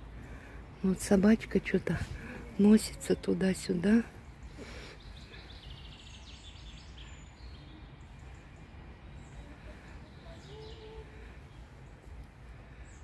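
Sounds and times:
songbird trill and chirps: 2.6 - 12.1.

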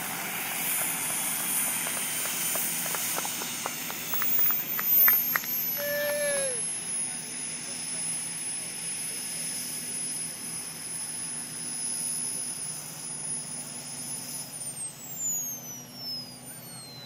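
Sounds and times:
gas turbine engine whine: 0.0 - 17.0.

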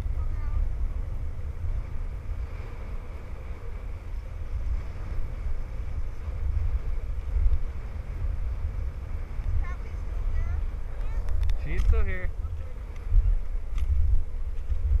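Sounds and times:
sled rumbling over snow: 0.0 - 15.0
wind buffeting microphone: 0.0 - 15.0.

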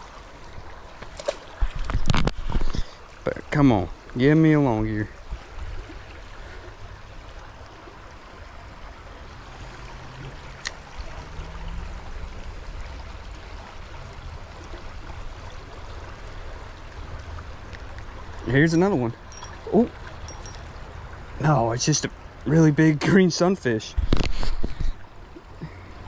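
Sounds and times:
creek running over rocks: 0.0 - 26.0.

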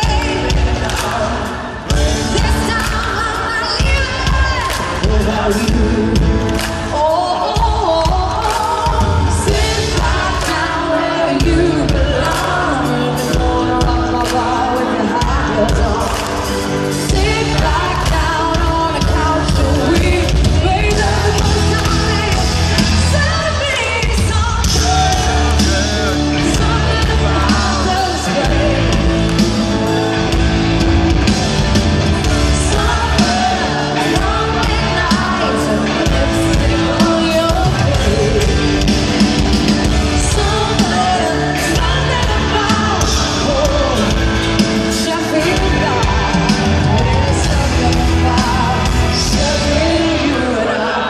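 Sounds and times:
live rock band: 0.0 - 51.0
person singing: 0.0 - 51.0
fans yelling: 20.8 - 51.0.

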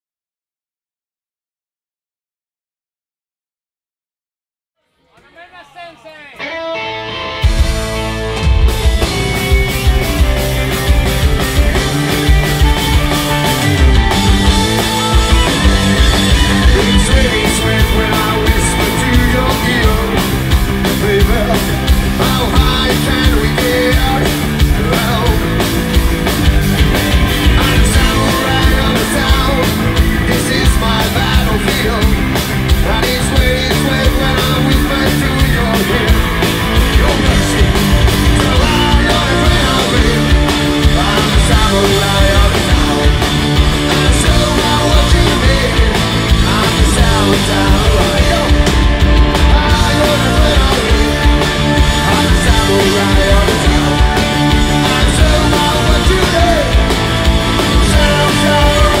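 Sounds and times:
rock band playing live: 5.3 - 59.0
person singing: 16.3 - 25.6, 27.4 - 59.0.

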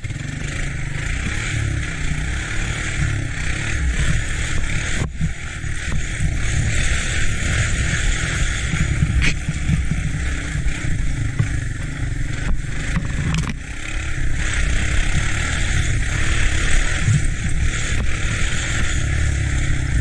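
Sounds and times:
three-wheeler engine running: 0.0 - 20.0
wind noise on microphone: 3.8 - 13.7, 14.3 - 20.0.

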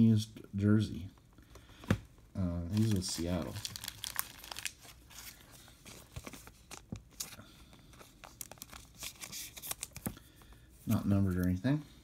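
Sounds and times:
cards and packaging rustling: 2.6 - 11.7.

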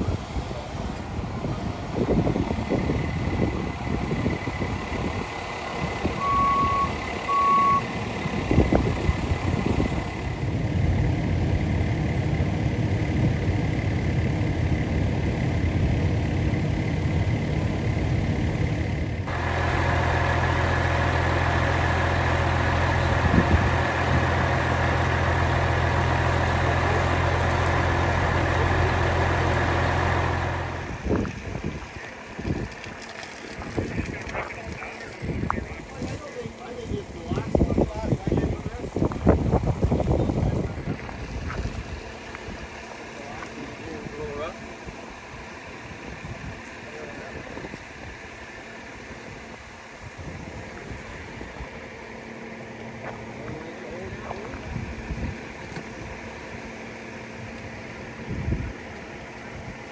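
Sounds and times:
large vehicle engine running: 0.0 - 59.9
short electronic beeps: 6.2 - 7.9.

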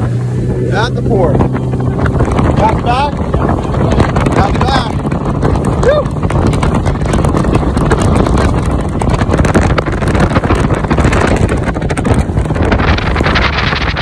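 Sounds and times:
motorboat engine running: 0.0 - 14.0
water rushing along hull: 0.0 - 14.0
wind buffeting microphone: 0.0 - 14.0.

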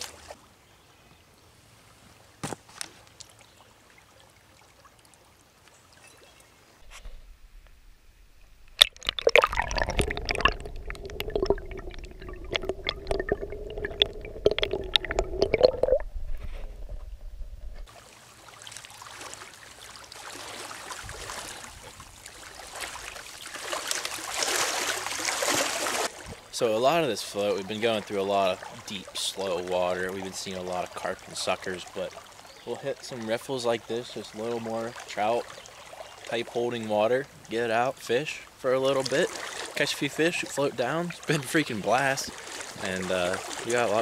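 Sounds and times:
stream riffle rushing: 6.6 - 21.7, 22.4 - 27.1
underwater gurgling and clicking: 6.8 - 17.9.

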